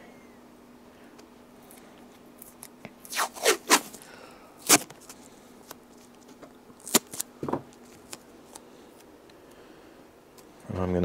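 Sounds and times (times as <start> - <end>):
adhesive tape ripping: 2.4 - 4.0, 4.6 - 5.2, 6.8 - 8.2.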